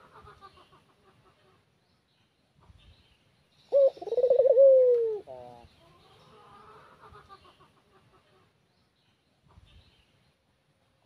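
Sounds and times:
dove cooing: 0:03.7 - 0:05.6.

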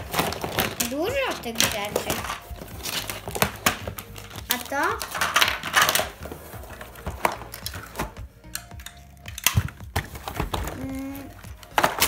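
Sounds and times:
plastic toy track pieces clacking: 0:00.0 - 0:06.2
background music: 0:00.0 - 0:12.0.

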